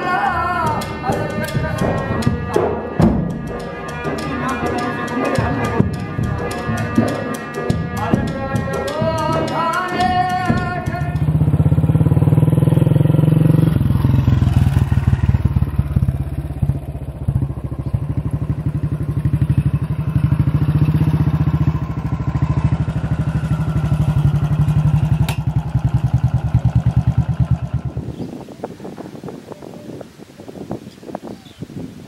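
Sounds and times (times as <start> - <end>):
motorcycle engine running: 9.0 - 28.4.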